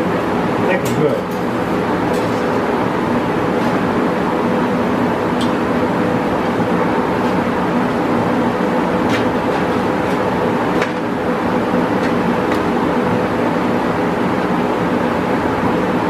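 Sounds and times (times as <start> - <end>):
steady machine hum: 0.0 - 16.0.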